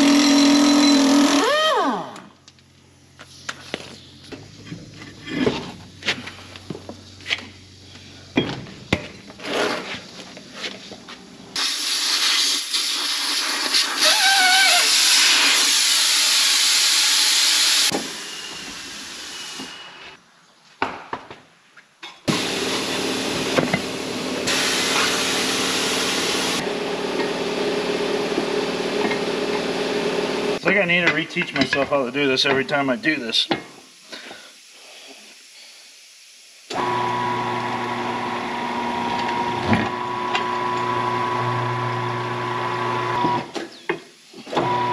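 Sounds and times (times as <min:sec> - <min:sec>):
tire-changing machine running: 0:00.0 - 0:01.7, 0:22.3 - 0:30.6, 0:36.7 - 0:43.6, 0:44.5 - 0:44.9
loud rush of hissing air: 0:11.6 - 0:20.2, 0:24.5 - 0:26.6.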